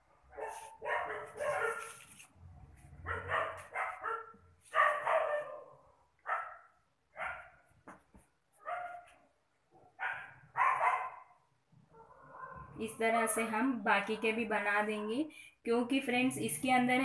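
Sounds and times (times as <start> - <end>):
dog barking: 0.2 - 2.0, 3.0 - 7.6, 8.6 - 12.7.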